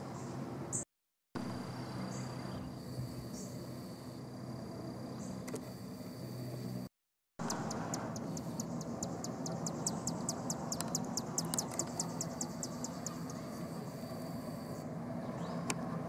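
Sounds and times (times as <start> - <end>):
high insect drone: 1.4 - 15.6
low traffic rumble: 1.4 - 16.0
songbird ticking calls: 7.4 - 15.8.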